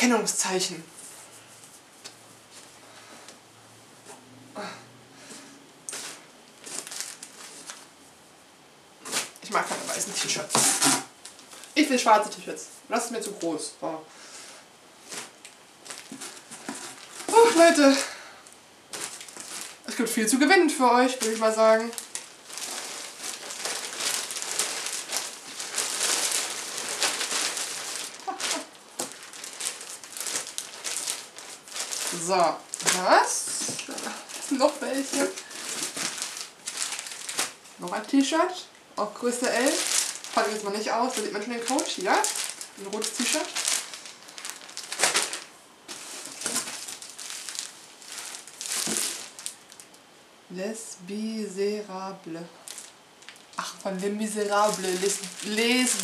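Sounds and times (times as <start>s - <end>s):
plastic bag crinkling: 5.9s - 7.9s, 9.0s - 12.4s, 15.0s - 50.0s, 52.5s - 56.0s.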